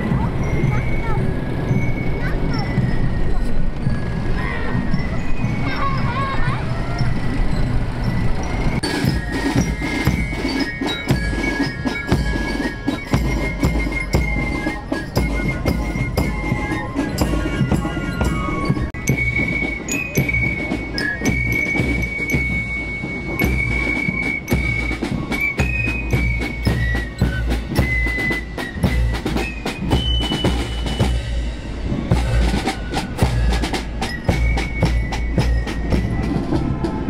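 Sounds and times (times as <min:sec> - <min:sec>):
marching drum strokes: 0:08.1 - 0:37.0
flutes playing high melody: 0:08.4 - 0:37.0.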